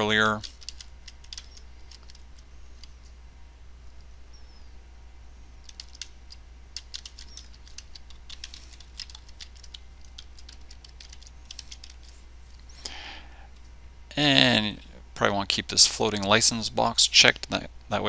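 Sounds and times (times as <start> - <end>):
steady low hum: 0.0 - 18.0
keyboard typing: 0.3 - 3.2, 5.6 - 12.2.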